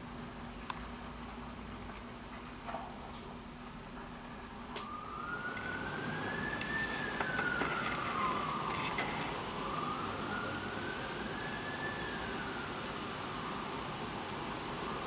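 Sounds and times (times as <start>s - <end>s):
siren wailing: 4.5s - 15.0s
heavy rain hiss: 5.4s - 15.0s.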